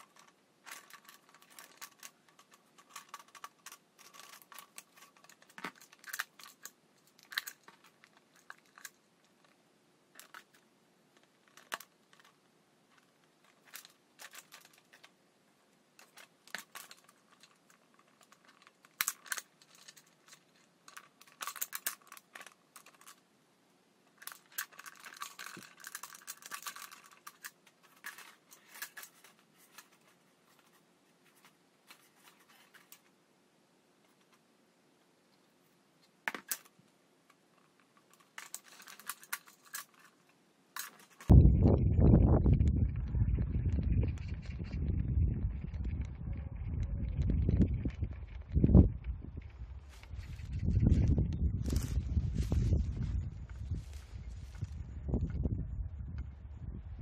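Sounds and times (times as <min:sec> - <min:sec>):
thin plastic crinkling: 0:00.0 - 0:15.2, 0:16.0 - 0:23.2, 0:24.1 - 0:33.1, 0:37.5 - 0:41.3.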